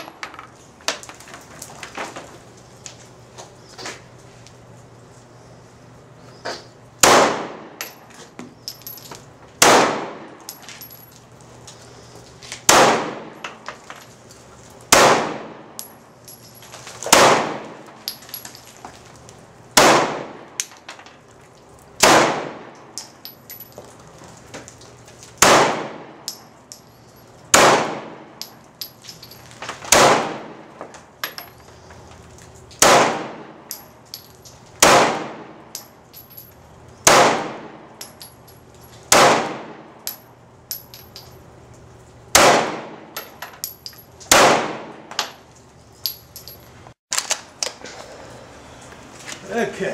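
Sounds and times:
gunshots: 7.0s - 7.7s, 9.6s - 10.3s, 12.7s - 13.4s, 14.9s - 15.7s, 17.1s - 17.8s, 19.8s - 20.5s, 22.0s - 22.7s, 25.4s - 26.2s, 27.5s - 28.3s, 29.9s - 30.6s, 32.8s - 33.5s, 34.8s - 35.6s, 37.0s - 37.8s, 39.1s - 39.8s, 42.3s - 43.0s, 44.3s - 44.9s.

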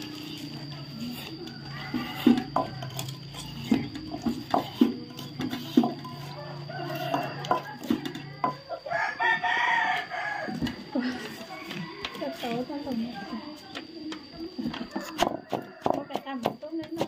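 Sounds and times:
rooster crowing: 1.1s - 4.0s, 5.9s - 13.2s, 14.7s - 16.4s
wooden pestle knocking in mortar: 15.0s - 17.0s.

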